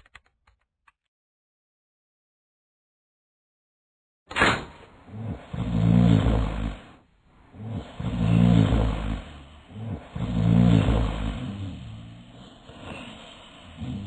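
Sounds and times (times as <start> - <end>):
cartoon snoring: 5.0 - 14.0.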